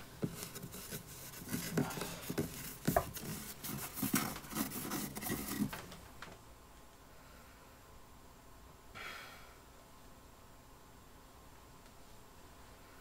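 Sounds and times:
scratching and rustling: 0:00.0 - 0:06.1.

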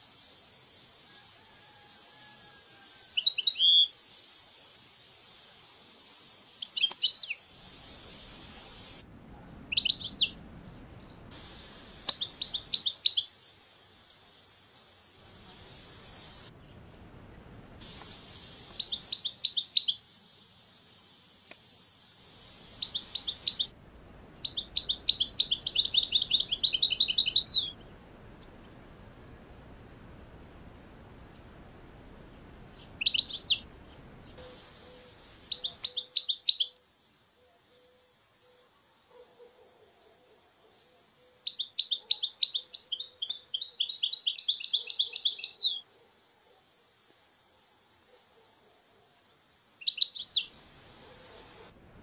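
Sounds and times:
steady high hiss: 0:00.0 - 0:39.2, 0:39.9 - 0:52.0
goldfinches twittering: 0:11.4 - 0:13.3, 0:22.7 - 0:23.7, 0:24.4 - 0:27.7, 0:33.0 - 0:33.6.

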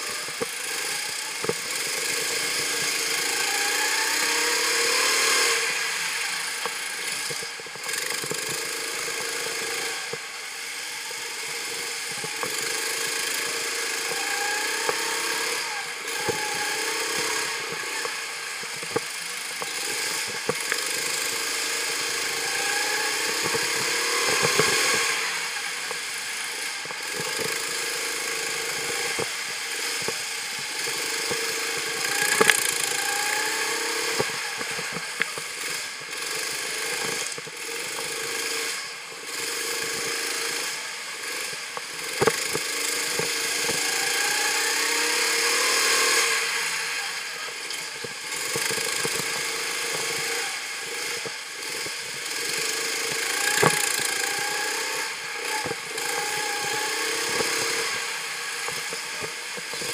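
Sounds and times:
go-kart engine revving: 0:00.0 - 0:59.9.

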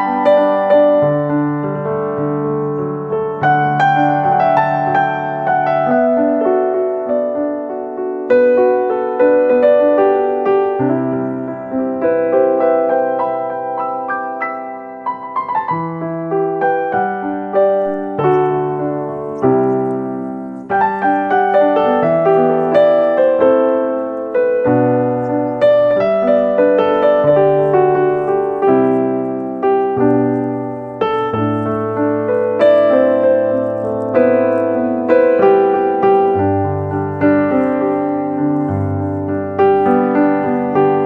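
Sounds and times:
piano music: 0:00.0 - 0:41.0.

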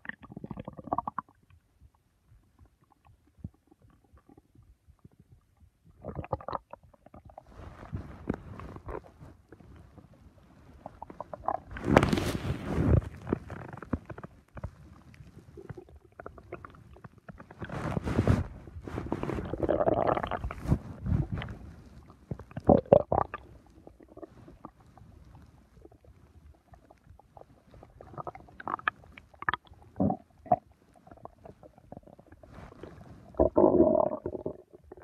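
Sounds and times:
stomach gurgling: 0:00.0 - 0:35.0.

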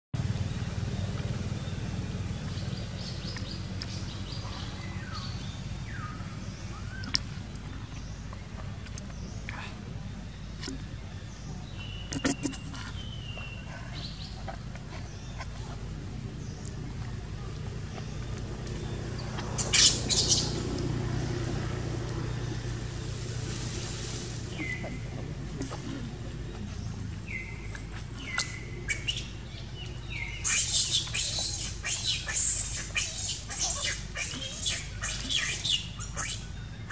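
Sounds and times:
low steady hum: 0:00.2 - 0:36.9
steady low rumble: 0:00.2 - 0:36.9
high whistled animal calls: 0:30.2 - 0:36.9.

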